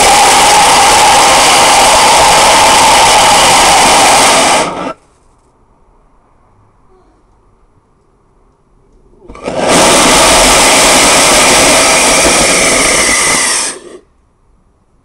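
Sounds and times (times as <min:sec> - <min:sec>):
rocket motor exhaust blast: 0:00.0 - 0:05.0, 0:09.2 - 0:14.1.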